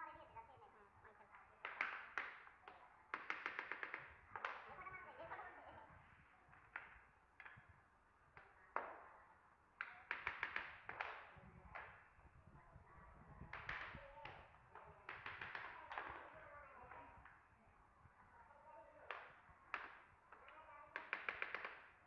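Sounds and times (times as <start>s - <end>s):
hammer tapping wooden floor planks: 1.6s - 4.8s, 9.8s - 12.0s, 13.5s - 17.4s, 19.0s - 22.0s.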